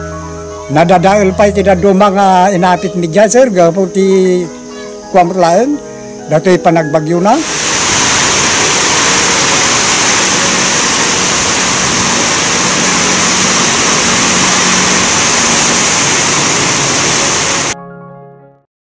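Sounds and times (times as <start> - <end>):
faint music: 0.0 - 7.6
loud rushing noise: 7.4 - 17.8.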